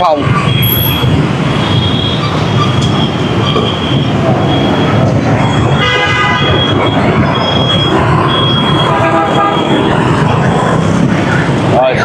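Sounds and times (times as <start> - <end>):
heavy city traffic: 0.0 - 12.0
car horn toots: 5.5 - 10.0.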